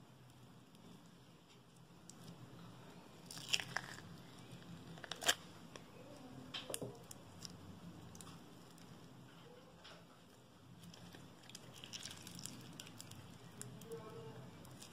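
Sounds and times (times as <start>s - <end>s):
slime squishing and popping: 3.2s - 5.9s, 10.8s - 13.9s.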